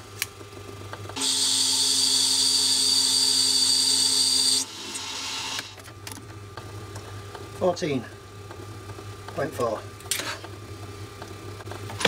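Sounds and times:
metal lathe high-pitched whine: 1.2 - 5.7
lathe chuck running: 1.2 - 5.8.

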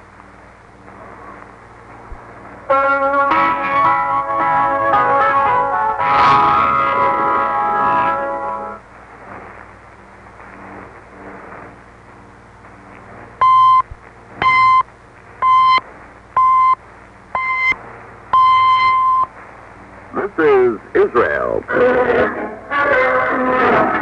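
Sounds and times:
faint static hiss: 0.0 - 24.0
time signal beeps: 13.4 - 15.8, 16.4 - 16.8, 17.4 - 19.3.

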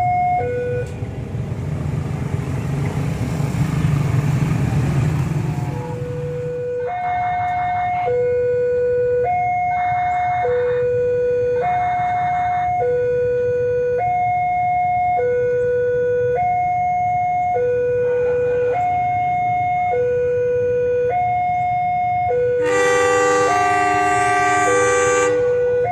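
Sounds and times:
level crossing two-tone alarm: 5.9 - 25.9.

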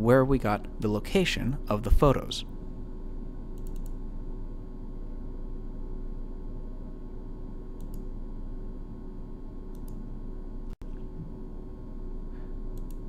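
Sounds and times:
low electrical hum: 0.0 - 13.0
computer mouse double-clicks: 3.6 - 4.0, 7.8 - 8.0, 9.7 - 10.0, 12.8 - 13.0.

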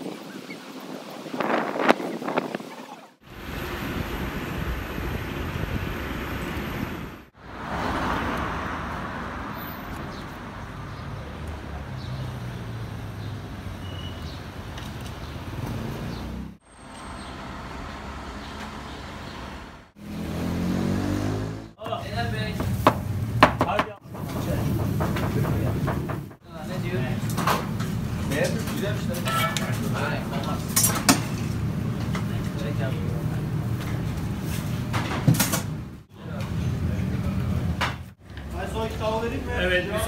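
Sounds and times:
street traffic noise: 3.2 - 40.0
voices: 21.8 - 22.8, 23.6 - 31.1, 31.9 - 34.0, 36.1 - 40.0.

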